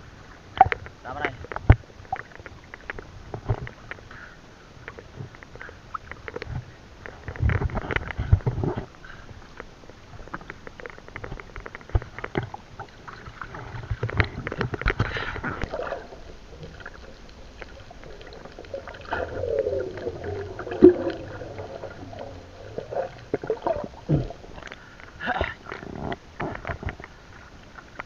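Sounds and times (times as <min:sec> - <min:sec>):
water splashing against camera: 0:00.1 - 0:28.0
muffled underwater gurgling: 0:10.0 - 0:28.0.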